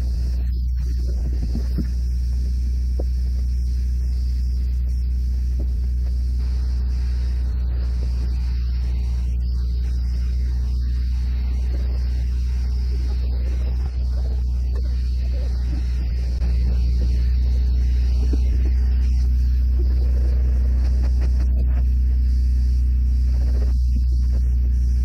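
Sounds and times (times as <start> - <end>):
faint hiss: 0.0 - 25.0
low machine drone: 0.0 - 25.0.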